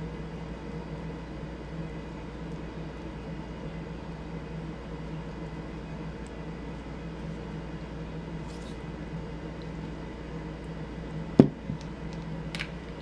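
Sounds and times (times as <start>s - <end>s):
low background hum: 0.0s - 13.0s
candle knocking on tabletop: 11.4s - 11.8s.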